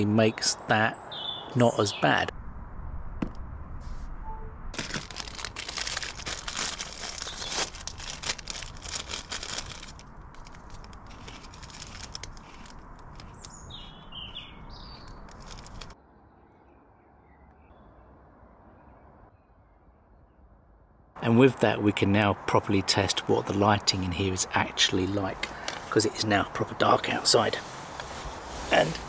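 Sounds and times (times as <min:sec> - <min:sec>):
bird chirps: 0:00.5 - 0:02.3, 0:13.0 - 0:15.3
plastic packaging crinkling: 0:04.8 - 0:13.9, 0:15.0 - 0:16.0.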